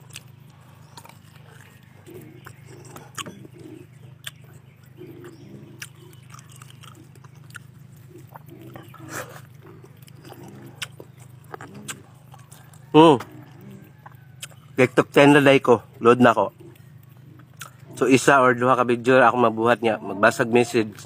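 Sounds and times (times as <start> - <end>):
person chewing food: 0.0 - 14.8, 16.6 - 18.0
faint low hum: 0.0 - 21.0
wet mouth clicks and lip smacks: 4.2 - 4.5.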